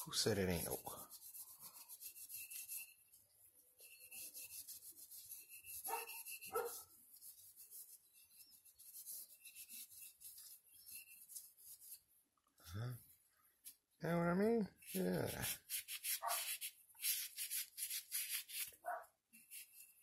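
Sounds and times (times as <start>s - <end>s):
cloth rubbing wood: 3.8s - 12.1s, 14.8s - 20.0s.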